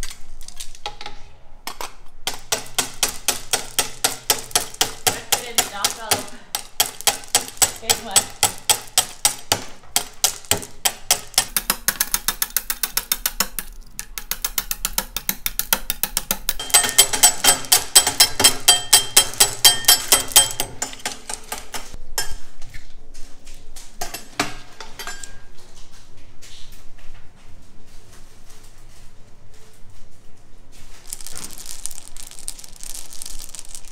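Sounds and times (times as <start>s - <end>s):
glassy ring: 16.6s - 20.7s.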